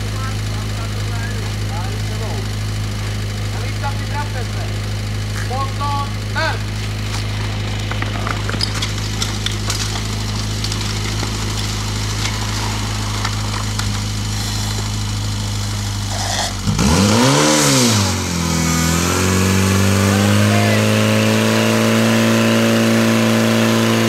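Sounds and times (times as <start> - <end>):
pump engine revving: 0.0 - 24.0.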